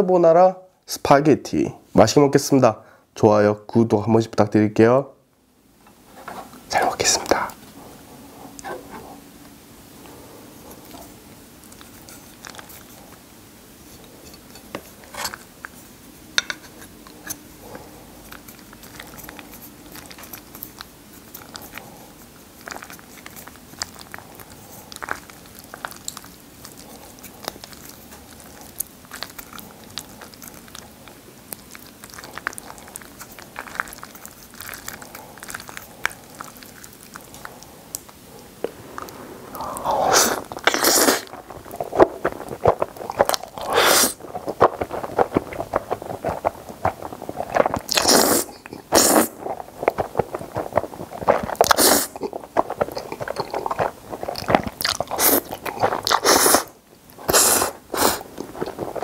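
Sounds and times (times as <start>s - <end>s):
noodles squishing: 17.1s - 59.0s
slurping noodles: 38.6s - 59.0s.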